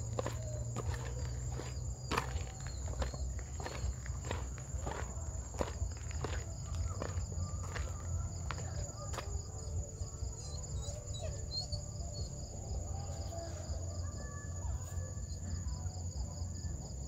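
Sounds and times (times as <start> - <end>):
footsteps on gravel: 0.0 - 9.6
insects trilling: 0.0 - 17.0.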